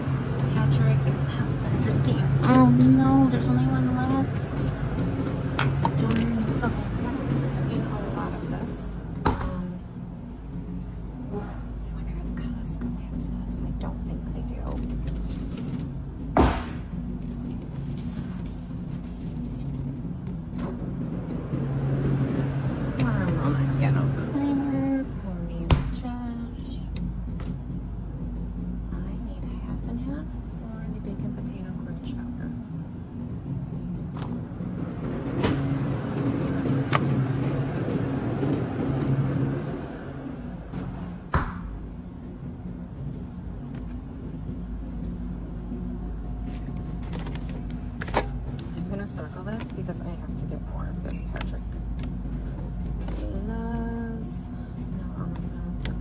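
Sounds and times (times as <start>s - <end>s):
cooler low hum: 0.0s - 56.0s
loud knock: 16.4s - 16.8s.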